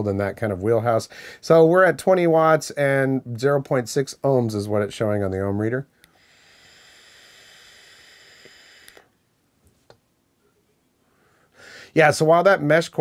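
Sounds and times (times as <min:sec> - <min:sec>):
vape draw hissing: 0:06.0 - 0:09.2
soft exhale: 0:06.1 - 0:09.2, 0:11.0 - 0:11.9.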